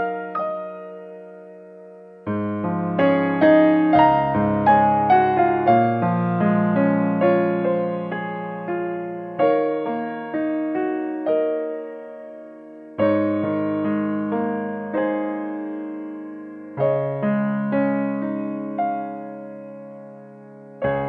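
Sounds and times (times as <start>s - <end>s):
gentle piano music: 0.0s - 21.0s.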